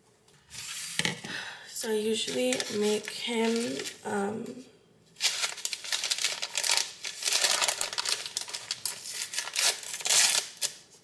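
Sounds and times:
packaging crinkling and rustling: 2.2 - 4.0, 5.2 - 11.0
packaging tearing: 2.5 - 4.0, 5.2 - 10.8.

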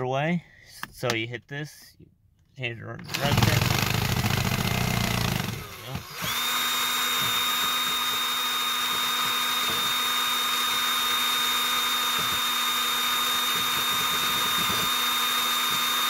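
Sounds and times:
power drill whining: 3.1 - 16.0.

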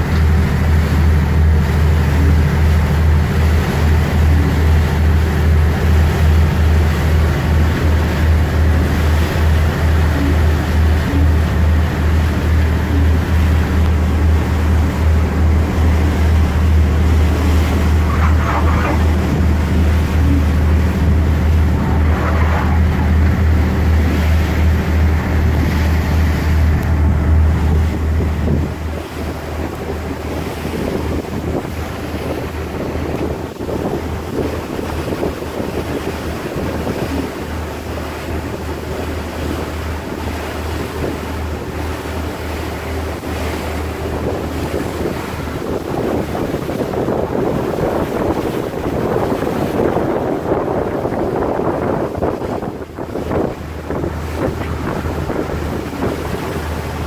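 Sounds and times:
ferry engine droning: 0.0 - 57.0
water rushing along hull: 0.0 - 57.0
wind buffeting microphone: 0.0 - 57.0.

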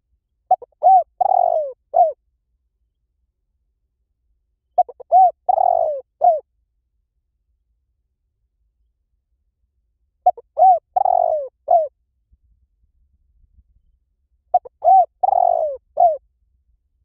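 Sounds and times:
dove cooing: 0.5 - 2.2, 4.8 - 6.4, 10.2 - 11.9, 14.5 - 16.2.

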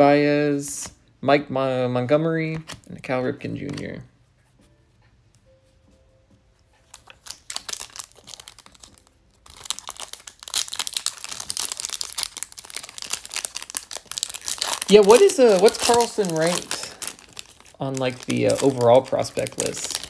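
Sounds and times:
foil wrapper crinkling and tearing: 6.9 - 20.0.

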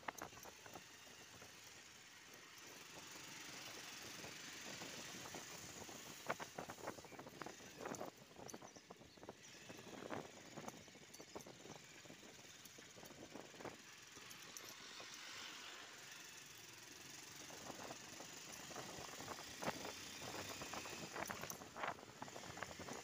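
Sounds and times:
wind and road noise: 0.0 - 23.0
short clicks and rattles: 17.3 - 23.0.

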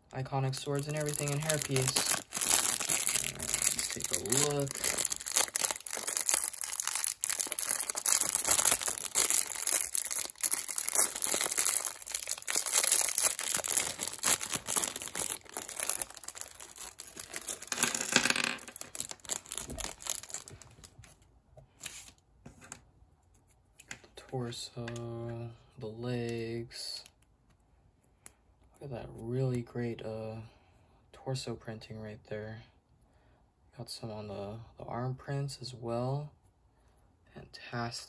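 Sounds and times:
plastic bag crinkling: 0.2 - 21.2.

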